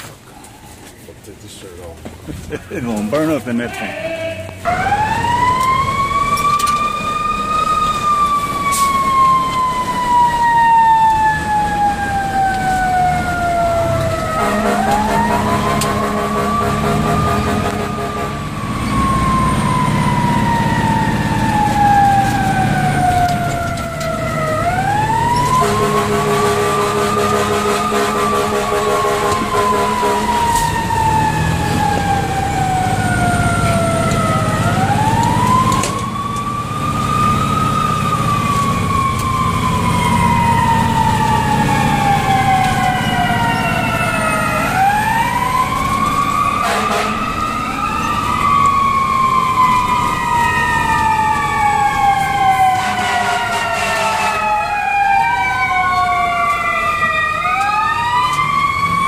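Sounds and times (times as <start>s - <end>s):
engine rumble: 0.0s - 3.6s, 4.4s - 52.8s
second siren: 4.6s - 59.0s.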